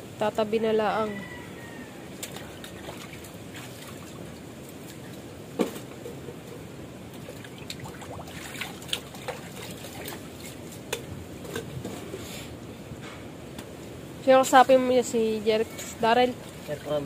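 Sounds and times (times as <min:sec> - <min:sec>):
water splashing in a basin: 0:02.2 - 0:05.1, 0:07.1 - 0:10.8.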